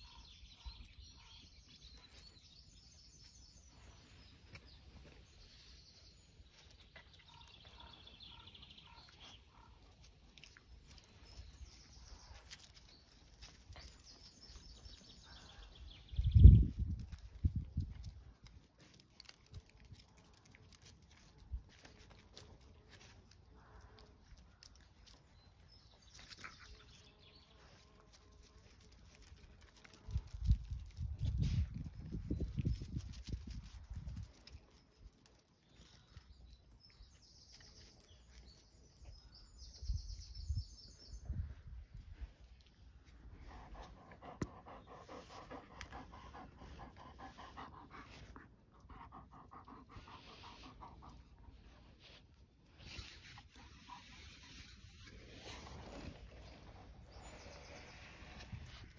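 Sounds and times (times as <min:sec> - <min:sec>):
dog panting: 0:43.5 - 0:51.6.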